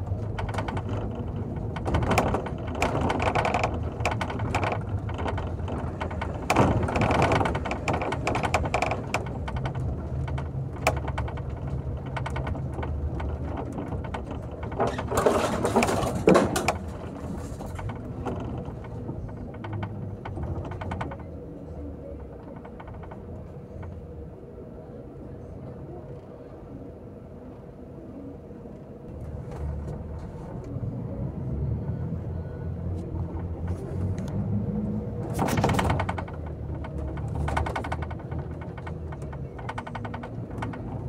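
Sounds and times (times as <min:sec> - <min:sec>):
bus fittings rattling and clicking: 0:00.0 - 0:24.4, 0:32.8 - 0:41.0
low engine drone: 0:00.0 - 0:41.0.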